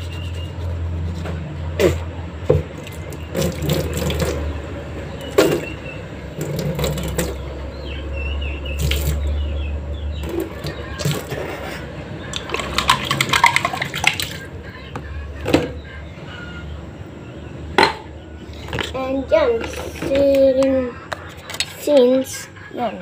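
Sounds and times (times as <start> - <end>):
water splashing and pouring: 2.8 - 4.4, 6.4 - 7.4, 8.8 - 9.2, 12.4 - 14.4.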